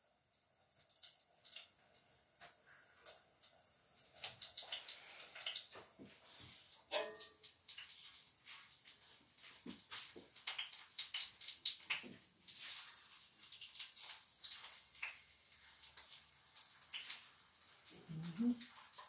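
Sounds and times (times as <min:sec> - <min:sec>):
oil sizzling and spitting: 0:00.0 - 0:19.0.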